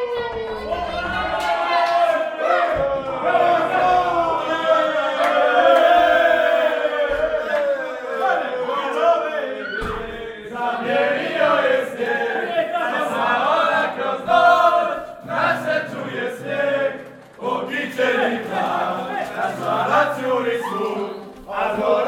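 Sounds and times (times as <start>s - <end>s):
men singing in chorus: 8.2s - 22.0s.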